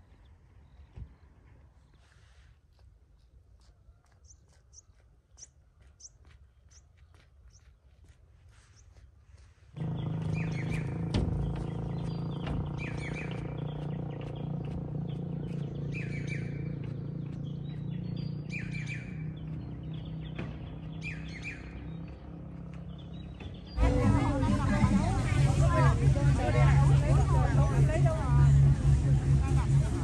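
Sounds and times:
songbirds chirping: 0.0s - 30.0s
steady low hum: 9.8s - 30.0s
sharp knocks: 10.6s - 12.8s.

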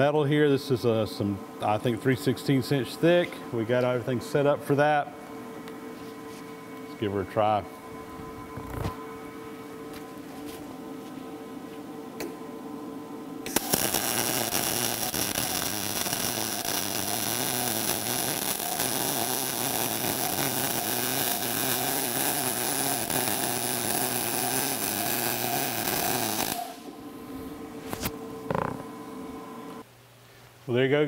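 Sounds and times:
welding arc crackling: 13.5s - 26.9s.

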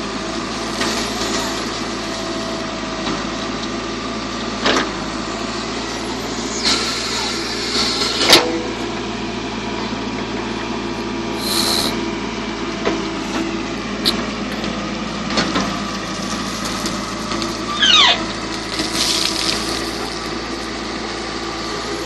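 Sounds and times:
diesel engine running: 0.0s - 22.0s
short falling squeal: 17.6s - 18.3s.

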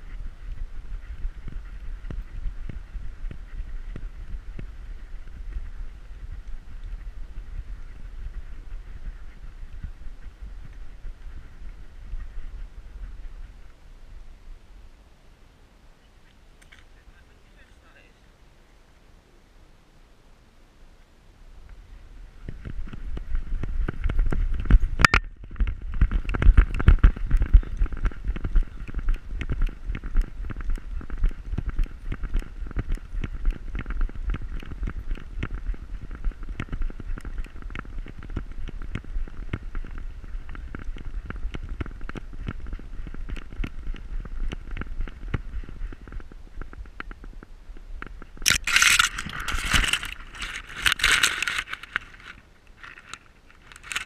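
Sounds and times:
twigs and grass scraping camera: 48.0s - 54.0s
camera mount rubbing and knocking: 48.4s - 54.0s.

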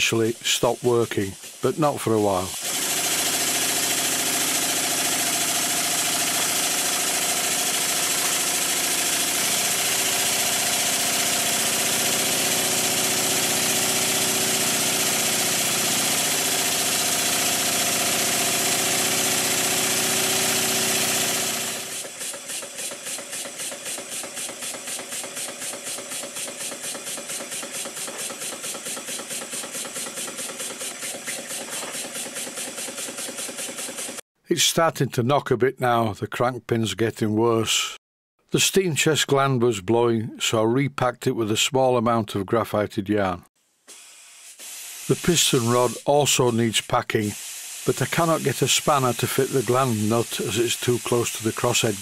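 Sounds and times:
model steam engine running: 0.0s - 34.2s, 44.6s - 52.0s
engine knocking: 2.6s - 34.2s.

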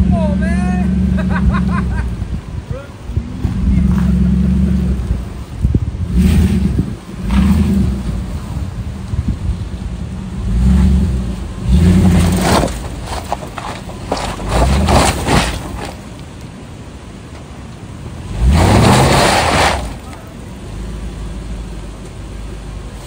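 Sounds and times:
truck engine revving: 0.0s - 17.0s, 17.9s - 23.0s
sharp knocks and clatters: 12.2s - 16.0s.

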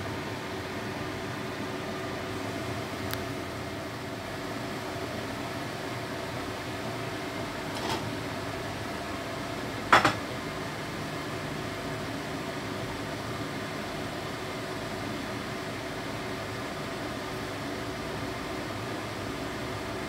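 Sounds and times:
kitchen hum and hiss: 0.0s - 20.0s
faint click: 3.1s - 3.3s
pot or dish clattering: 9.9s - 10.2s.

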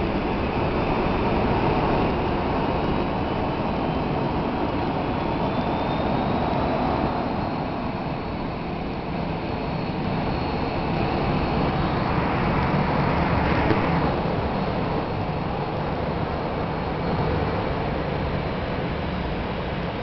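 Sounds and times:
high engine whine: 0.0s - 20.0s
jet engines rumbling: 0.0s - 20.0s.

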